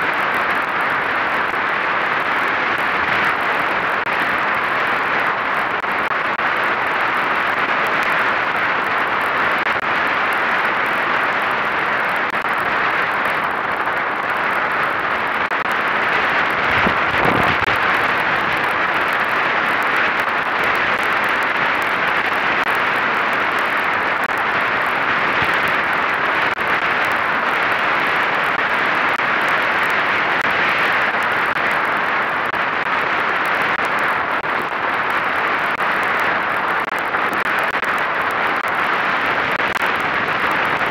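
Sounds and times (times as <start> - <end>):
wind and water rushing: 11.0 - 40.9.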